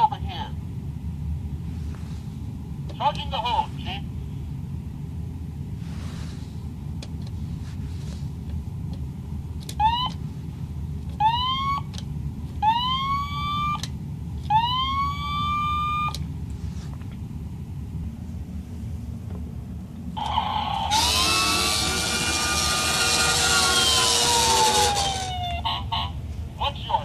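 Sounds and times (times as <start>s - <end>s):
toy siren whooping: 11.2s - 11.9s, 12.6s - 13.8s, 14.5s - 16.2s, 20.2s - 25.8s
low hum: 11.9s - 25.6s.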